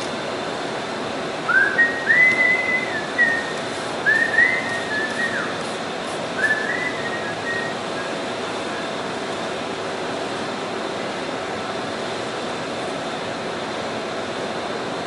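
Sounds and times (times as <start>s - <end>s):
shop background noise: 0.0s - 15.0s
person whistling a tune: 1.5s - 5.6s, 6.4s - 8.2s.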